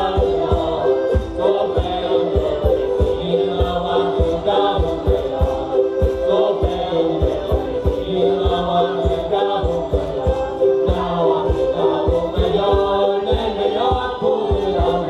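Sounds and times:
group singing folk music: 0:00.0 - 0:15.0
low drum beat: 0:00.0 - 0:15.0.

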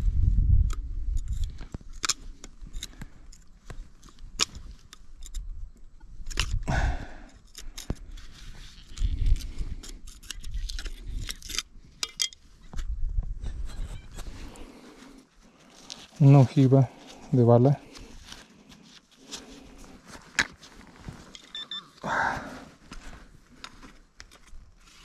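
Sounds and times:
knife scraping on rock and gravel: 0:07.5 - 0:12.4.

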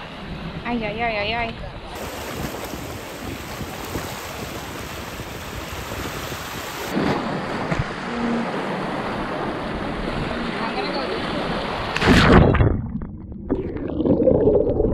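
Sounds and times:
water lapping against rocks: 0:02.0 - 0:07.0.

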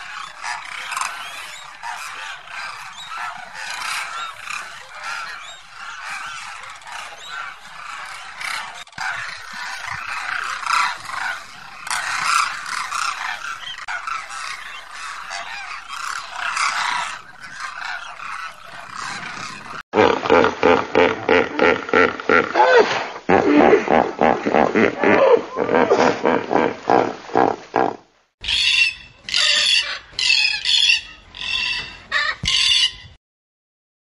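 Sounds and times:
cranes calling: 0:00.0 - 0:22.4, 0:28.4 - 0:33.1.

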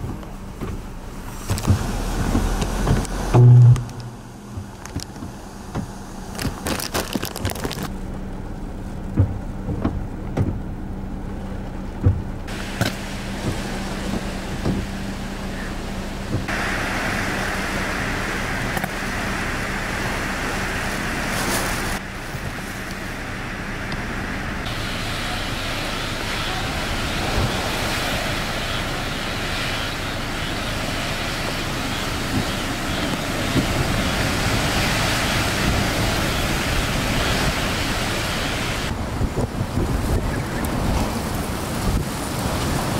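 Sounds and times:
wind and driving rain: 0:00.0 - 0:42.9
low hum: 0:01.2 - 0:06.1.

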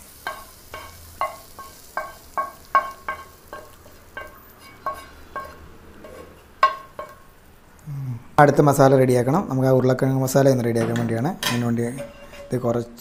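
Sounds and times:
metal spoon scraping a pan: 0:00.1 - 0:07.4, 0:10.8 - 0:13.0.

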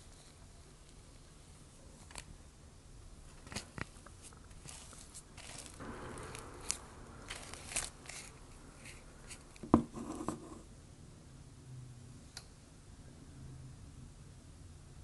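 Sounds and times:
plastic spoon scraping ice cream: 0:04.2 - 0:10.6.

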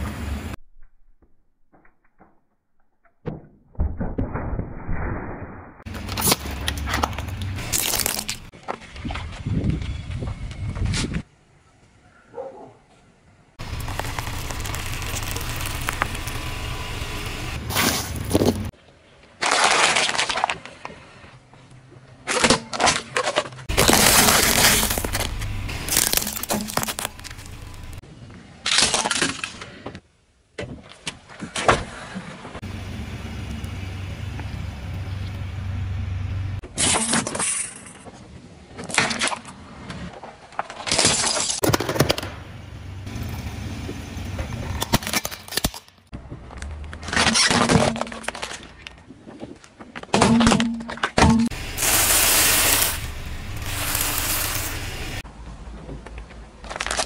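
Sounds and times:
slowly rolling car rumble: 0:05.9 - 0:11.2, 0:13.6 - 0:18.7, 0:23.7 - 0:28.0, 0:32.6 - 0:36.6, 0:41.8 - 0:45.0, 0:46.1 - 0:47.3, 0:51.5 - 0:57.0
tyre crushing objects: 0:23.3 - 0:28.0.

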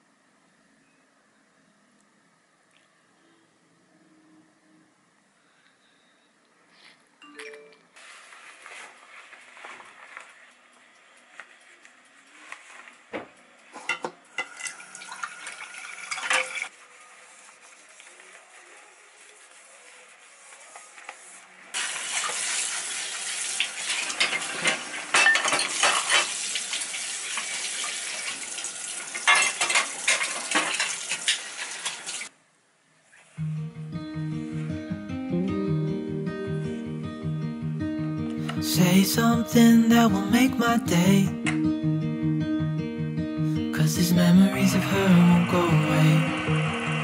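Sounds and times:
dishes clinking and knocking: 0:13.8 - 0:14.7, 0:24.2 - 0:26.3
tap water running: 0:14.5 - 0:16.7, 0:21.8 - 0:32.3.

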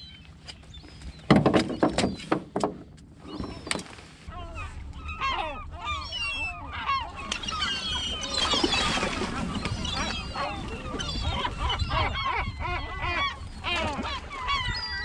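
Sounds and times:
flock of birds calling: 0:03.3 - 0:15.0.

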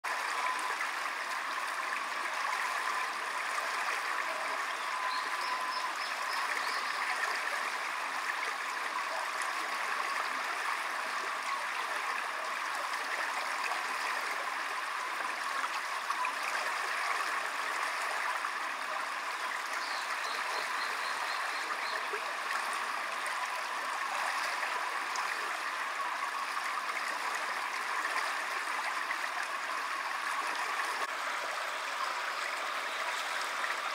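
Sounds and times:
stream water rushing: 0:00.0 - 0:33.9.

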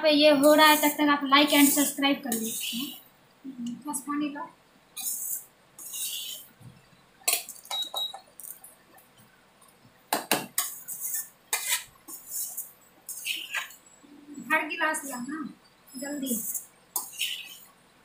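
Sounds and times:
metal spatula scraping a metal pan: 0:00.4 - 0:03.0, 0:05.0 - 0:06.5, 0:10.6 - 0:13.8, 0:16.2 - 0:17.7.

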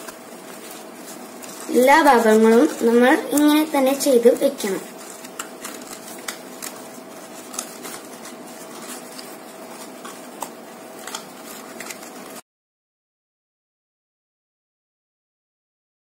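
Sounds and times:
leaves crackling: 0:00.0 - 0:12.4.

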